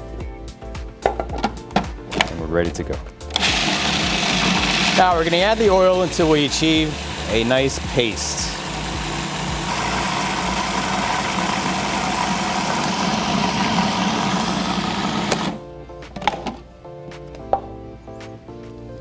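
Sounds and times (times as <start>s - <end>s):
background music: 0.0s - 19.0s
food processor motor running: 3.4s - 15.6s.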